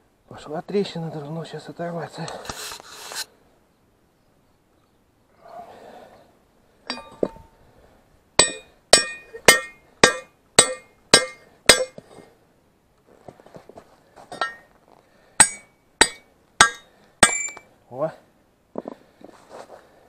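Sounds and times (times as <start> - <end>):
hammer striking steel: 6.9 - 7.4, 8.4 - 12.0, 14.4 - 14.7, 15.4 - 17.6.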